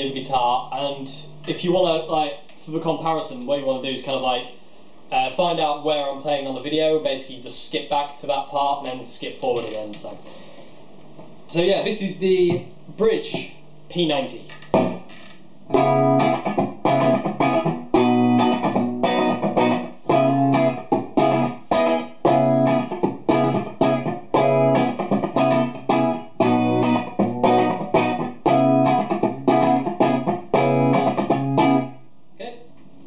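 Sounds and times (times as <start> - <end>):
electric guitar riff: 14.7 - 15.1, 15.7 - 32.0.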